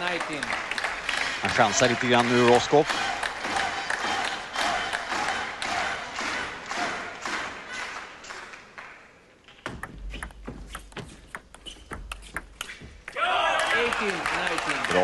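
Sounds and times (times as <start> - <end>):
applause: 0.0 - 9.0, 13.6 - 15.0
table tennis ball clicking: 9.5 - 13.2.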